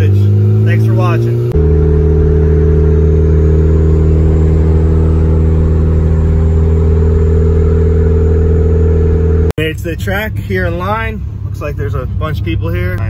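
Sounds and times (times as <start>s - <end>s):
car engine droning: 0.0s - 13.0s
road noise: 0.0s - 13.0s.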